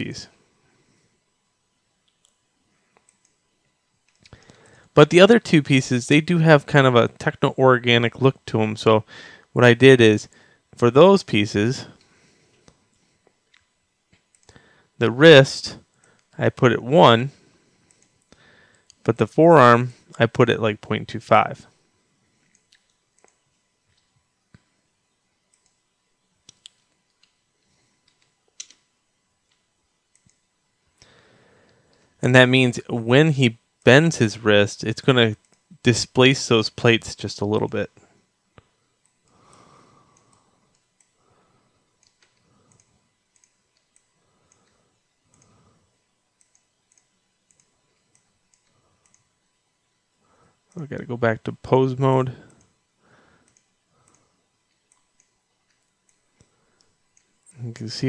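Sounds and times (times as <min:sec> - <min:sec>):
computer mouse and keyboard clicks: 0:22.4 - 0:24.7, 0:25.5 - 0:25.8, 0:26.4 - 0:27.4, 0:28.0 - 0:30.5, 0:42.0 - 0:45.6, 0:46.4 - 0:49.3.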